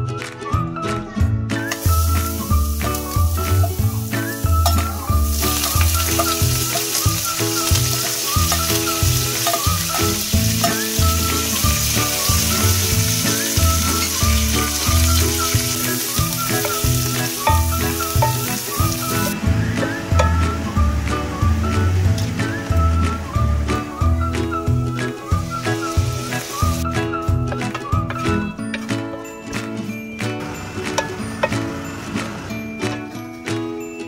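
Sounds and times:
background music with steady beat: 0:00.0 - 0:34.0
garlic sizzling in butter: 0:01.6 - 0:19.4, 0:25.4 - 0:26.9.

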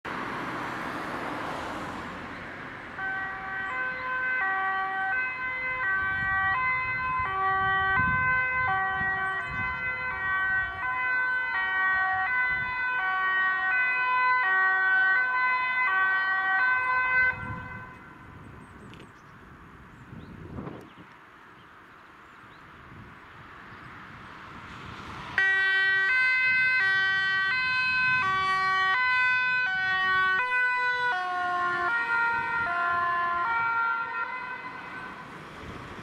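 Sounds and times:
traffic noise: 0:00.0 - 0:36.0
two-tone ambulance siren: 0:02.8 - 0:18.5, 0:25.3 - 0:36.0.

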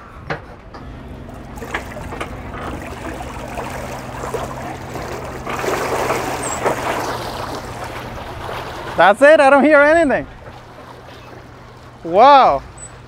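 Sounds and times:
propeller churning water: 0:00.0 - 0:13.0
electric drive hum: 0:00.6 - 0:08.9.

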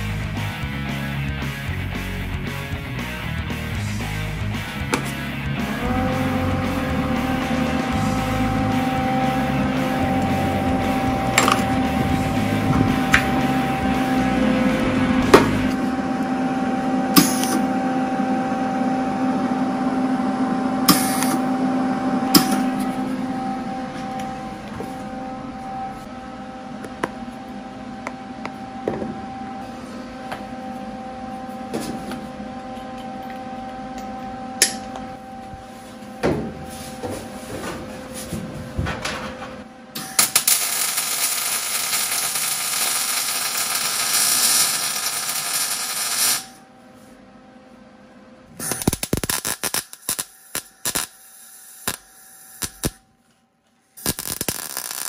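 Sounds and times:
steady hum: 0:00.0 - 0:55.0
welder arc crackling: 0:05.8 - 0:14.3, 0:40.0 - 0:46.6, 0:48.6 - 0:53.0, 0:54.0 - 0:55.0
short welding bursts: 0:40.2 - 0:46.6, 0:48.6 - 0:53.0, 0:54.0 - 0:55.0.

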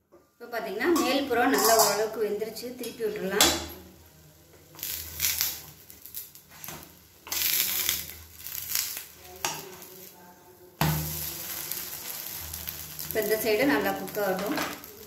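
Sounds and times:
batter sizzling in hot oil: 0:00.4 - 0:15.0
spatulas scraping a pan: 0:01.0 - 0:02.1, 0:04.7 - 0:09.9.

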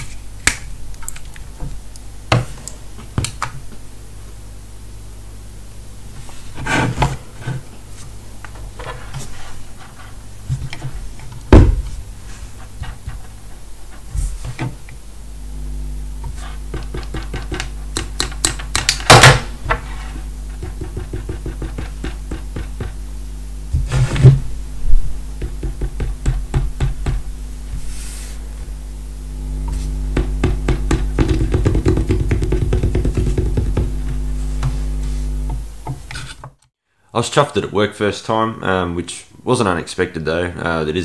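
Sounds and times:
electrical hum: 0:00.0 - 0:36.6
microphone scratching and clicking: 0:06.2 - 0:23.1, 0:23.7 - 0:36.6
loud knocks: 0:11.5 - 0:12.0, 0:30.1 - 0:34.0.

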